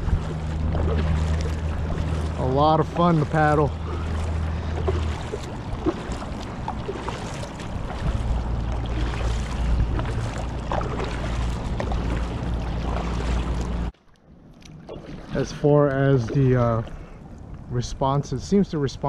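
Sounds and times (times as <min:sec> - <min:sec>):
wind rumbling on microphone: 0:00.0 - 0:13.9
paddle strokes splashing in water: 0:00.0 - 0:17.6.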